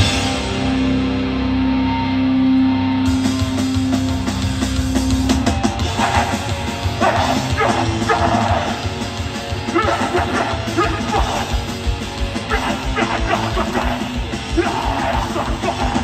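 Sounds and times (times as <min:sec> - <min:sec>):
punk band playing live: 0:00.0 - 0:16.0
harsh shouting vocals: 0:05.8 - 0:16.0.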